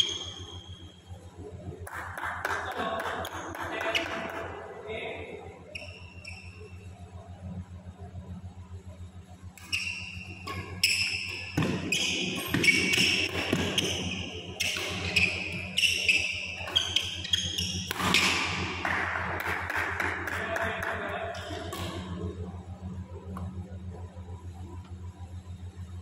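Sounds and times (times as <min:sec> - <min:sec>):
steady low hum: 0:00.0 - 0:26.0
shoes squeaking on court: 0:03.8 - 0:04.4, 0:05.7 - 0:06.7, 0:09.6 - 0:18.6
racquets hitting shuttlecock: 0:09.5 - 0:22.2.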